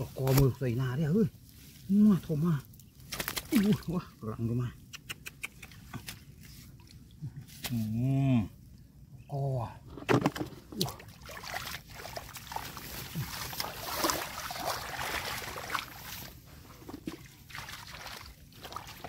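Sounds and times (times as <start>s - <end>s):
hands splashing in water: 10.8s - 16.2s
wet straw rustling: 11.4s - 16.9s.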